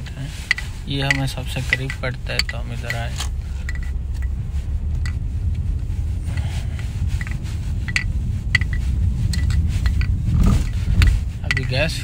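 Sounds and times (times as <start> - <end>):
car engine and tyres rumbling: 0.0 - 12.0
light clicks and rattles: 0.5 - 4.4, 6.4 - 12.0.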